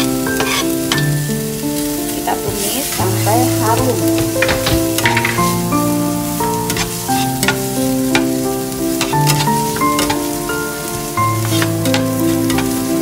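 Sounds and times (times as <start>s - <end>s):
metal spatula scraping pan: 0.0s - 1.1s, 6.5s - 8.3s, 9.0s - 13.0s
background music: 0.0s - 13.0s
food sizzling in a pan: 0.0s - 13.0s.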